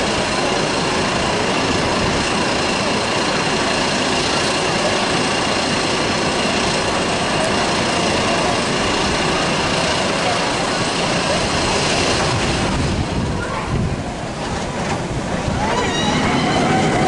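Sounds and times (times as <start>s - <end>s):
roller coaster lift running: 0.0s - 17.0s
faint high tone: 15.6s - 17.0s.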